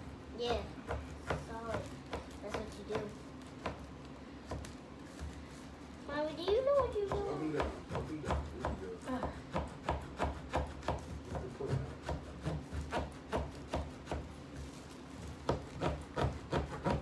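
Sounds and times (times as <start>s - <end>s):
small saw cutting pumpkin: 6.7s - 14.7s, 15.4s - 17.0s.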